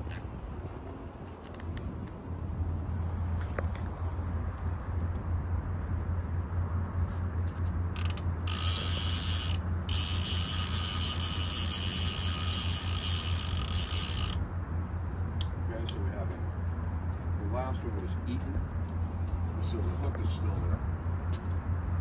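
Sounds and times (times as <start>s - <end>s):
steady low hum: 0.0s - 22.0s
fishing reel ratchet buzzing: 7.9s - 14.4s.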